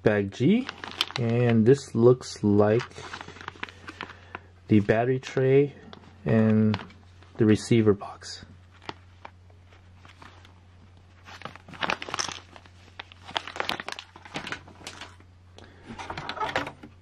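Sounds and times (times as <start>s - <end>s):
plastic bags crinkling: 0.4s - 2.0s, 2.6s - 4.9s, 8.6s - 17.0s.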